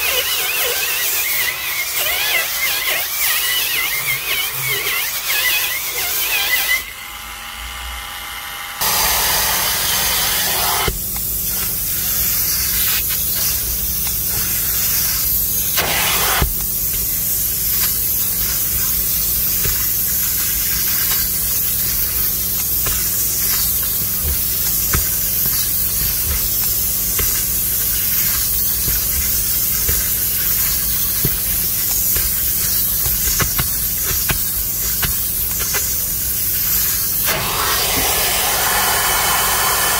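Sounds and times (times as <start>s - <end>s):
power brush scrubbing: 0.0s - 6.9s, 8.8s - 39.9s
extractor suction hiss: 8.8s - 39.9s.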